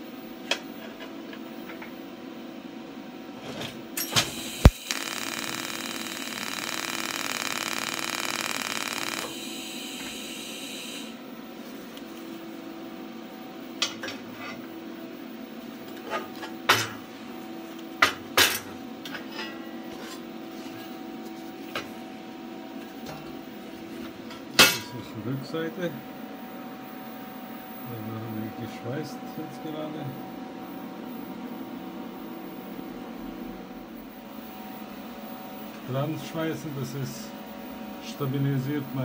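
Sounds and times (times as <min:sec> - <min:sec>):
welding arc hissing: 0:04.0 - 0:11.2.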